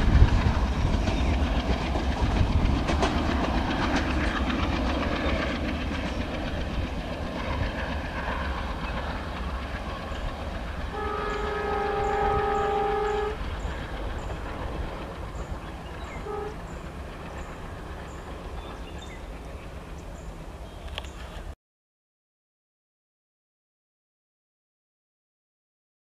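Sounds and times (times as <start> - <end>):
diesel train rumbling: 0.0 - 21.6
locomotive horn: 10.9 - 13.6, 16.1 - 16.7.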